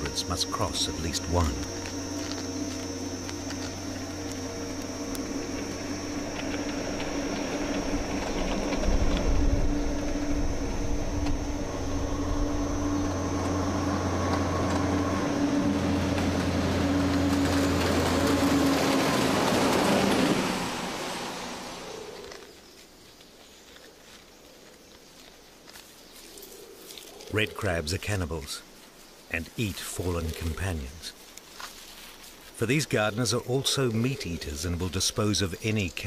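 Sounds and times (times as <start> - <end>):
heavy truck engine rumbling: 0.0 - 21.9.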